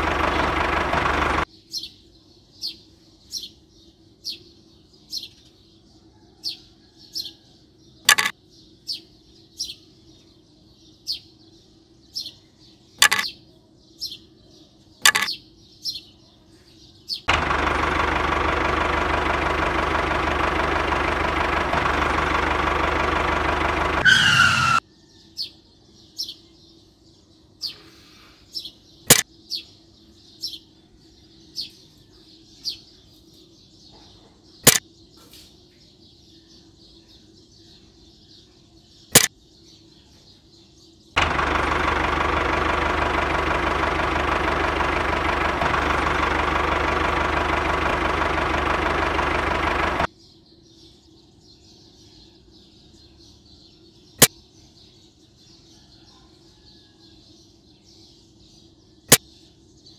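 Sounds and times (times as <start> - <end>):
small tractor motor running: 0.0 - 1.5, 17.3 - 24.8, 41.2 - 50.1
small birds chirping: 0.0 - 59.9
wooden parts knocking: 8.1 - 8.3, 13.0 - 13.3, 15.0 - 15.3.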